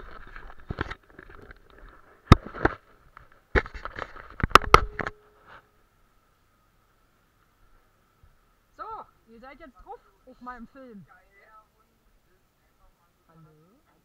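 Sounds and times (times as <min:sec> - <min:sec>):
camera handling noise: 0:00.1 - 0:05.6.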